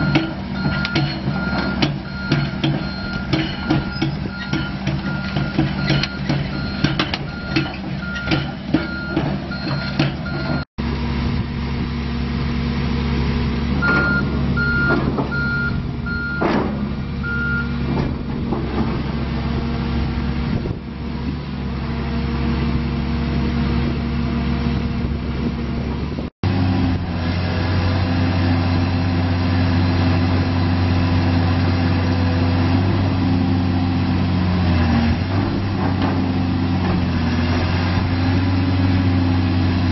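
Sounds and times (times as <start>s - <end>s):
sharp metallic knocks: 0.0s - 10.6s
diesel engine running: 0.0s - 39.9s.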